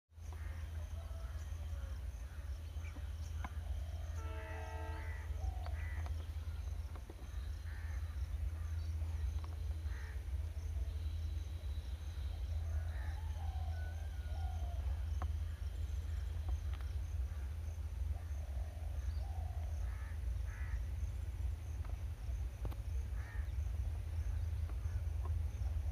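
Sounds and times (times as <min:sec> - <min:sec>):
crow-like cawing: 0:04.4 - 0:06.1, 0:07.7 - 0:08.7, 0:09.9 - 0:10.2, 0:12.7 - 0:13.9, 0:19.8 - 0:20.8, 0:23.2 - 0:23.6
steady low rumble: 0:04.9 - 0:25.9.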